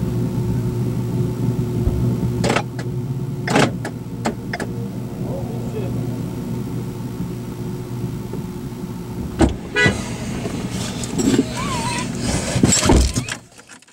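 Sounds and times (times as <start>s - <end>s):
vehicle engine idling: 0.0s - 13.6s
loud thump: 1.8s - 2.7s, 9.2s - 9.8s.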